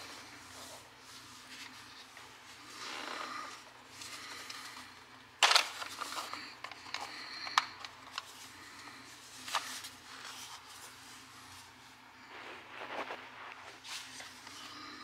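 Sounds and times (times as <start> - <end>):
plastic clicks: 5.4 - 8.3.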